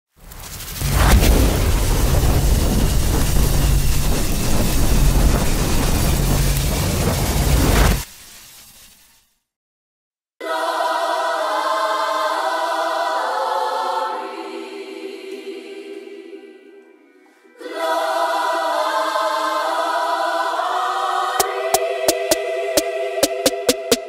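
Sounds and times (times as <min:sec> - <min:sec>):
choir singing sustained chords: 0:10.4 - 0:24.0
sharp beat: 0:21.4 - 0:24.0.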